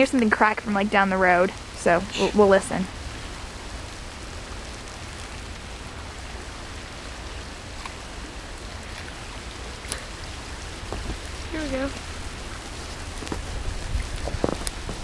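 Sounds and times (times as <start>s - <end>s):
wind on microphone: 7.5s - 15.0s.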